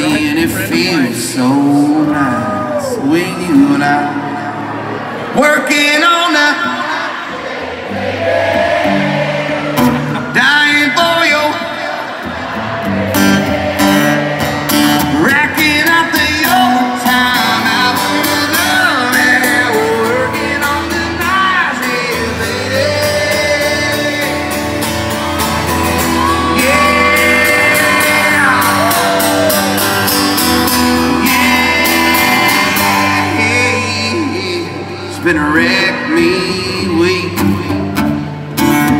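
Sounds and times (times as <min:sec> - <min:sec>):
man singing: 0:00.0 - 0:04.5, 0:05.3 - 0:07.2, 0:10.1 - 0:12.1, 0:14.8 - 0:25.6, 0:26.2 - 0:38.9
crowd shouting and whooping: 0:00.0 - 0:38.6
strummed acoustic guitar: 0:07.8 - 0:38.9.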